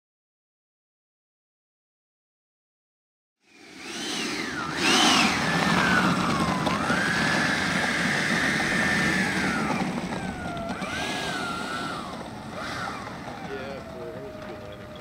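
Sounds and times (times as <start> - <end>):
electric ducted fan whine: 3.4 - 15.0.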